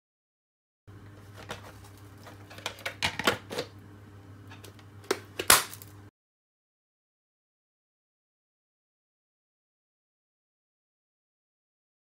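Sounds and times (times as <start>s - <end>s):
faint steady hum: 0.9s - 6.1s.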